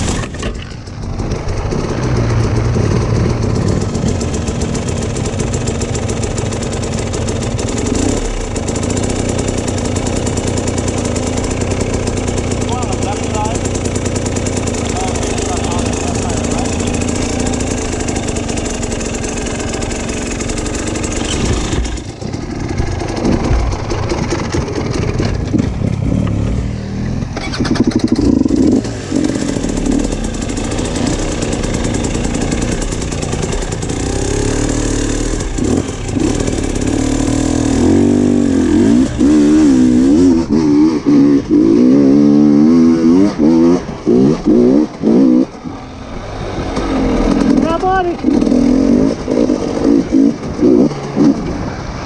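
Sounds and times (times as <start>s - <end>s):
dirt bike engine revving: 0.0s - 52.0s.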